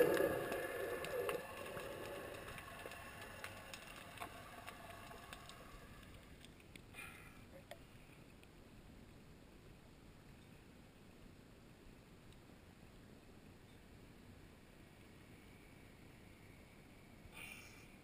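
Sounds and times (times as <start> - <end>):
small underwater clicks: 0.0 - 6.9
faint underwater hiss: 0.0 - 8.4.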